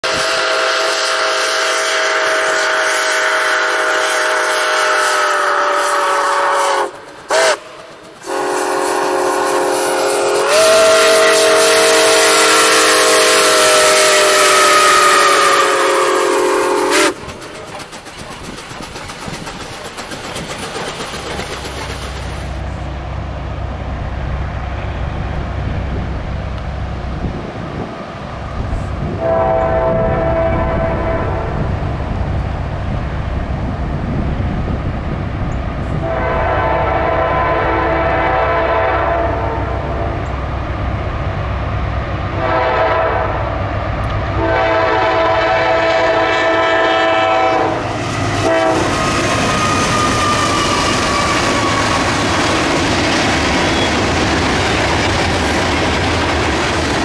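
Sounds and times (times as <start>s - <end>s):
locomotive air horn blasts: 0.0s - 17.2s, 29.1s - 31.7s, 35.9s - 40.3s, 42.3s - 43.6s, 44.3s - 51.8s
train cars rumbling past: 0.0s - 57.0s.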